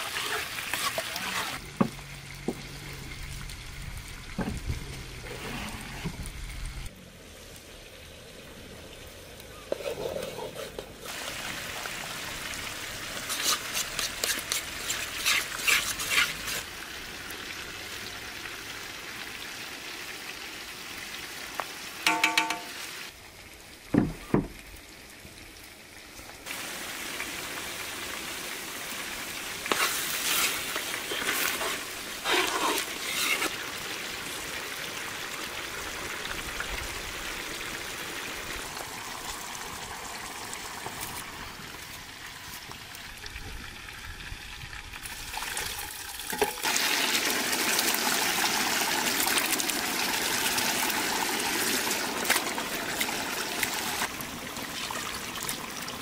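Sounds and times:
food sizzling in pot: 9.6s - 23.2s, 26.4s - 36.2s, 45.0s - 54.1s
metal spoon scraping pot: 13.3s - 16.6s, 31.1s - 33.5s.

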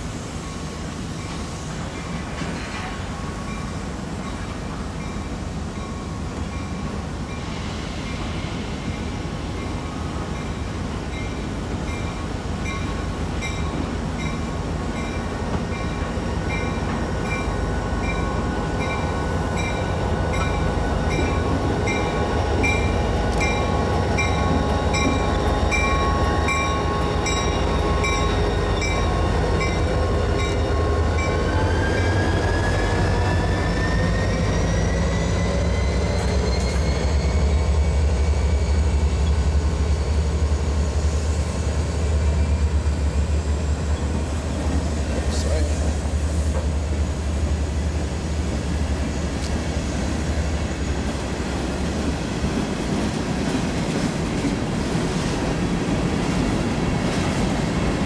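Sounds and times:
metallic wheel squeal: 31.2s - 38.0s.

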